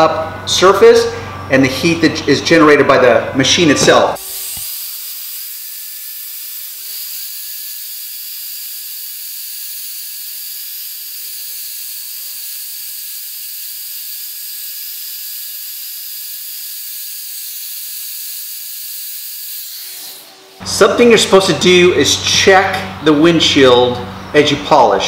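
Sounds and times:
electric drill polishing glass: 4.2 - 20.6.

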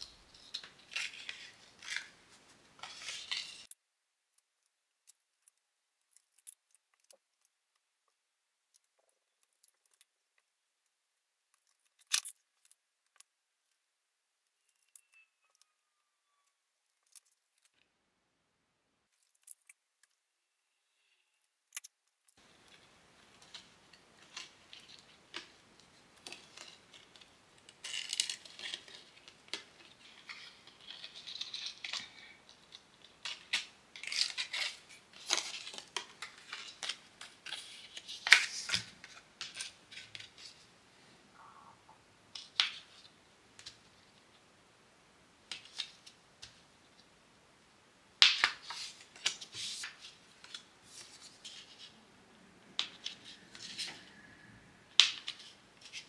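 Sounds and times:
paper cards rustling: 0.0 - 3.8, 22.3 - 40.7, 45.5 - 46.6, 48.2 - 52.0, 55.0 - 56.0.

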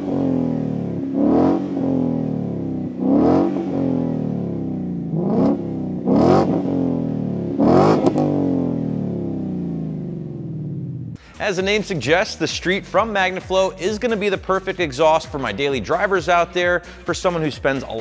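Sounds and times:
car engine revving and idling: 0.0 - 11.2.

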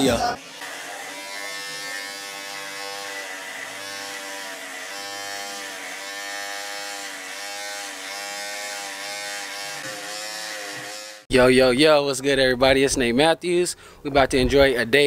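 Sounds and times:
electric hair clipper buzzing: 0.0 - 11.3.

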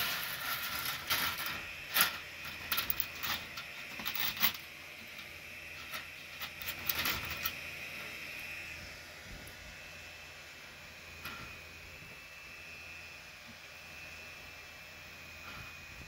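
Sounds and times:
clicks and rattles: 0.0 - 7.6
laser engraver high whine: 0.0 - 16.0.

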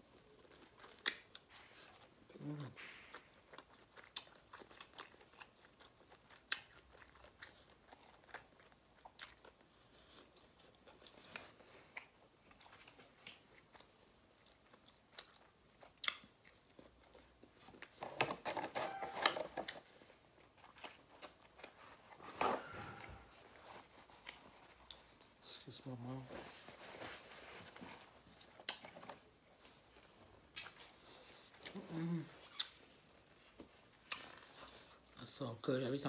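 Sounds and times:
chewing and biting: 0.3 - 18.0, 19.6 - 25.4.

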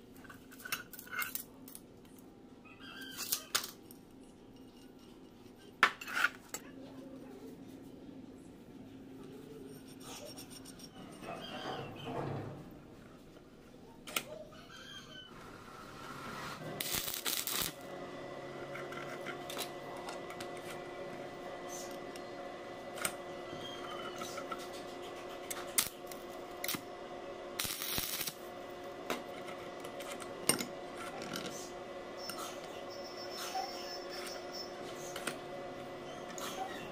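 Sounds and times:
steady hum: 15.4 - 36.9
metal scraping rasps: 16.0 - 17.8, 23.4 - 26.8.

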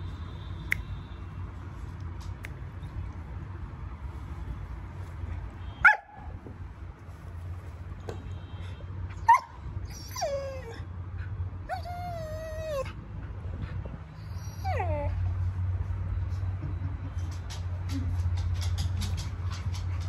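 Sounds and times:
dog barking: 5.8 - 6.2
dog whining and howling: 9.2 - 10.8, 11.7 - 13.0, 14.2 - 15.2.

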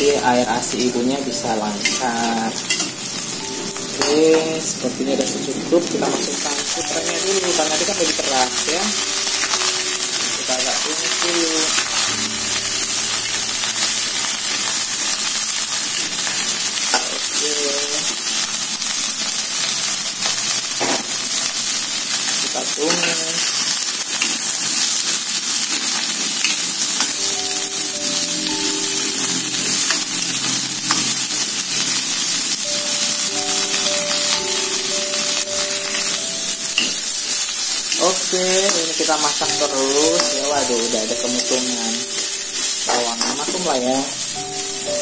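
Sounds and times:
vegetables sizzling in hot oil: 0.0 - 45.0.

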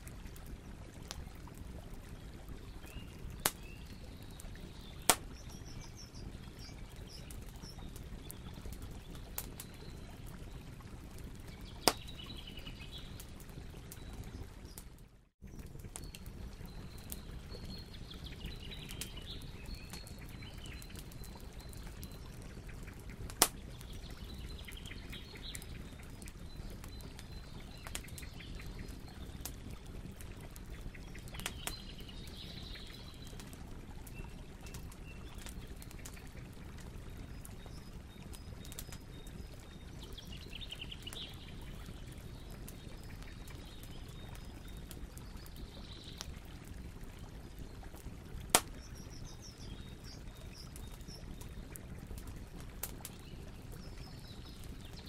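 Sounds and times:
bonfire burning with low rush: 0.0 - 55.0
cracking wood pops: 11.8 - 12.1, 48.5 - 48.8.

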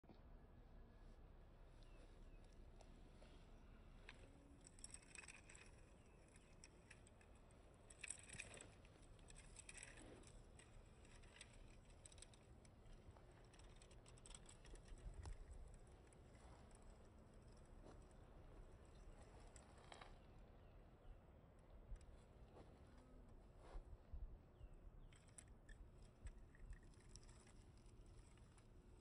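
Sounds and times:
faint rustles: 1.0 - 21.2, 21.8 - 29.0
toy car small clicks: 4.6 - 16.4, 25.0 - 28.7.

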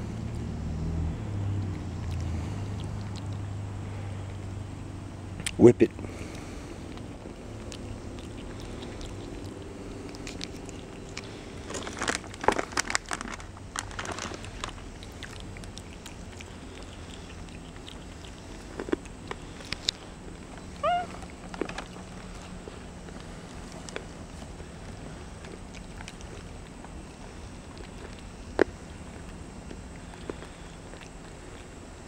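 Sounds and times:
monkey crunching nuts: 1.6 - 3.5, 5.4 - 32.0
high rising chirp: 20.6 - 21.2.

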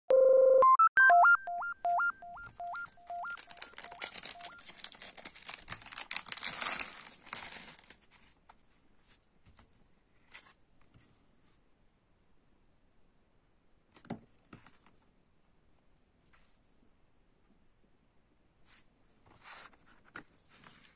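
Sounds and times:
electronic beep jingle: 0.1 - 4.6
cellophane crinkling and tearing: 2.8 - 8.1.

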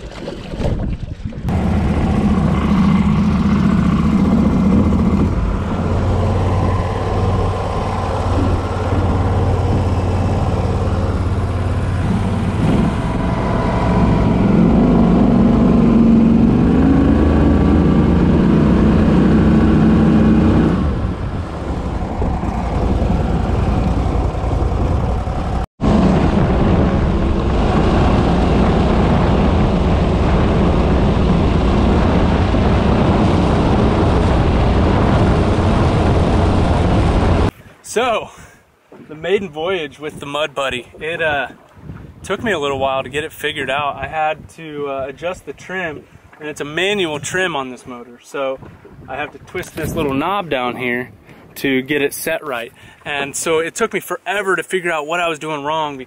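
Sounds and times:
boat motor running: 1.2 - 37.5.

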